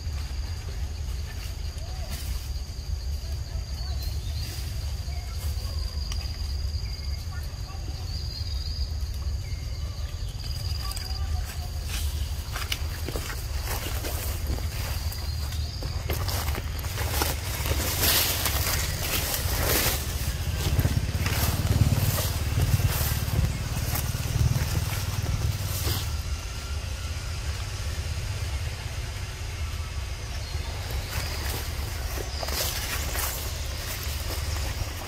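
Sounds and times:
footsteps rustling through dry leaves: 0:00.0 - 0:35.0
low rumble: 0:11.8 - 0:35.0.

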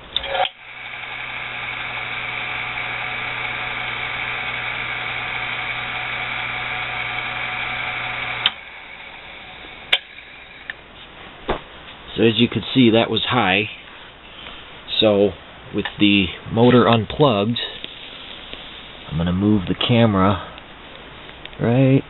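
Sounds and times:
electric motor humming: 0:00.2 - 0:10.8.

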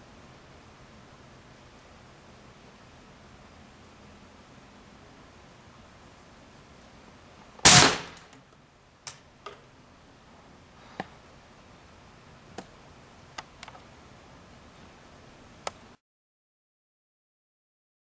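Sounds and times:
pellet pistol shot crack: 0:07.6 - 0:08.3
gun handling clicks and knocks: 0:08.1 - 0:09.7.

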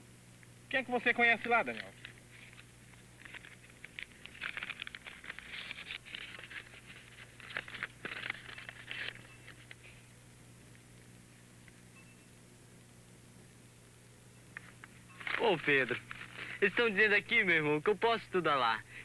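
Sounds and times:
paper crinkling and tearing: 0:01.4 - 0:09.9, 0:15.2 - 0:16.7.

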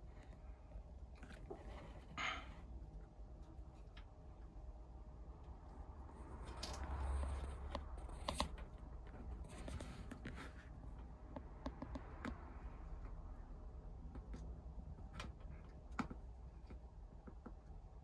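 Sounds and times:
faint scratching and rustling: 0:00.0 - 0:02.8, 0:06.1 - 0:12.0.

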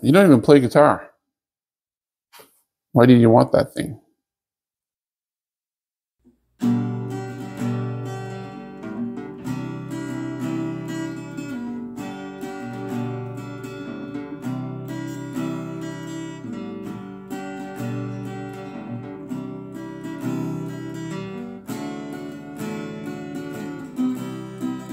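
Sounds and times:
acoustic guitar chords: 0:06.6 - 0:24.9.

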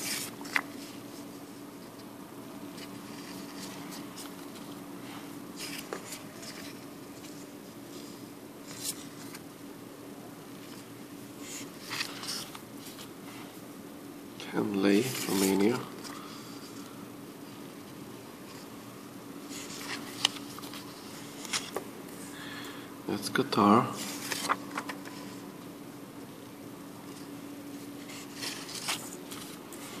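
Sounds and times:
faint steady hum: 0:00.0 - 0:30.0
banknotes rustling and crinkling: 0:14.9 - 0:16.8, 0:19.5 - 0:21.8, 0:23.6 - 0:25.4, 0:27.1 - 0:30.0.

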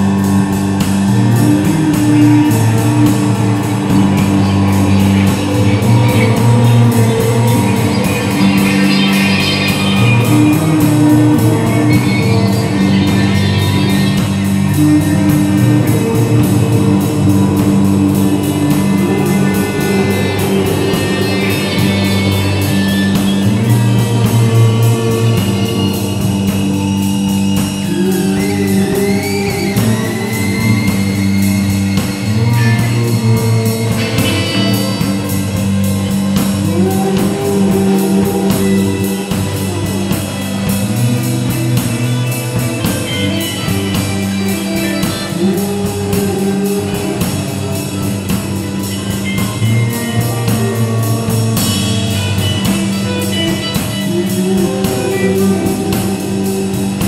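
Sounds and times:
drum kit beat: 0:00.0 - 0:57.0
electric bass riff: 0:00.0 - 0:57.0
guitar: 0:00.0 - 0:57.0
sliding high notes: 0:00.0 - 0:57.0
electronic loops: 0:01.4 - 0:15.7.

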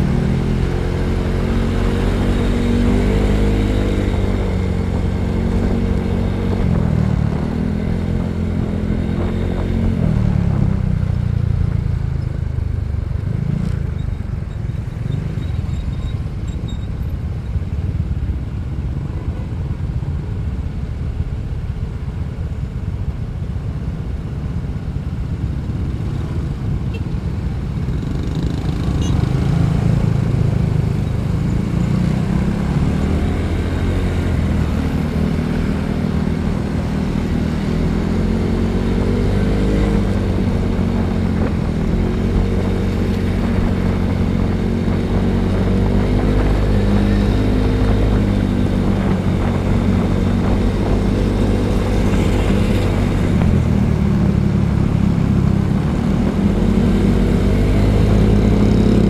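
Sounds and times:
motorcycle engine accelerating: 0:00.0 - 0:14.2, 0:27.8 - 0:59.0.

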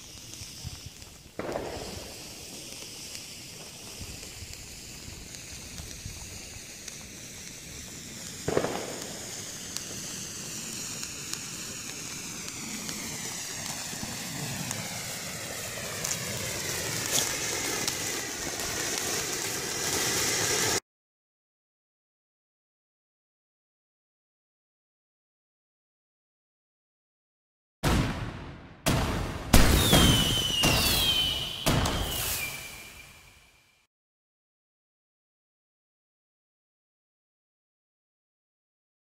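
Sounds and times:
firework bang: 0:00.0 - 0:02.8, 0:08.3 - 0:20.8, 0:27.8 - 0:33.5
fireworks hissing: 0:00.0 - 0:20.8, 0:28.9 - 0:33.8
small firework pops: 0:00.0 - 0:20.8, 0:27.8 - 0:33.5.

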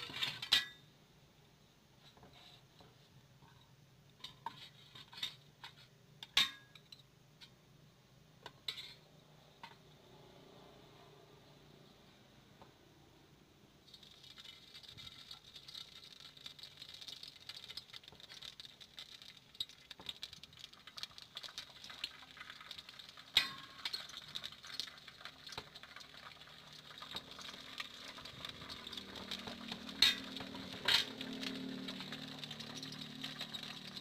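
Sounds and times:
hot oil sizzling in a wok: 0:13.9 - 0:34.0.

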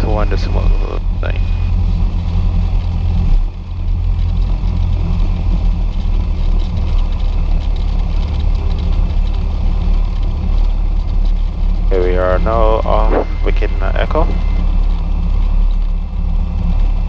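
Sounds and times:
airplane engine low drone: 0:00.0 - 0:17.0.

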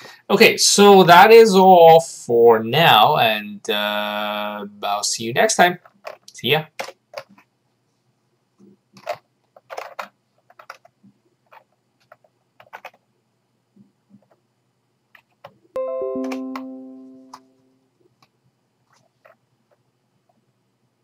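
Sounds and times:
computer notification chime: 0:15.8 - 0:17.6.

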